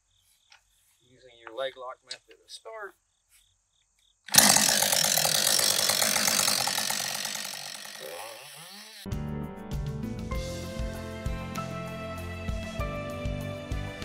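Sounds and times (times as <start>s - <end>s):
chainsaw starting and running: 4.3s - 9.1s
music: 9.1s - 14.0s.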